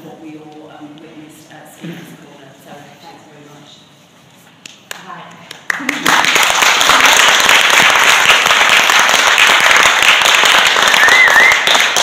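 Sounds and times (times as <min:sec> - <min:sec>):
audience applauding: 0:05.7 - 0:12.0
short high cheer: 0:10.8 - 0:12.0.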